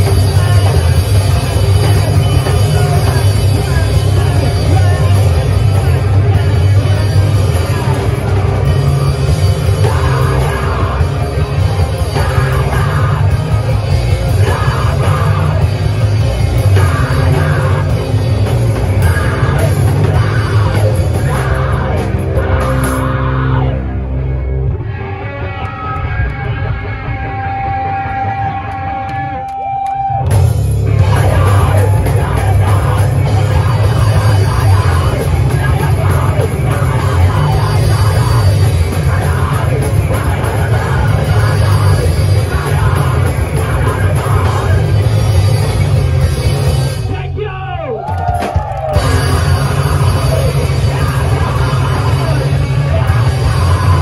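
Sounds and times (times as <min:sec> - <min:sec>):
live heavy rock band: 0:00.0 - 0:54.0
shouted vocals: 0:47.1 - 0:54.0.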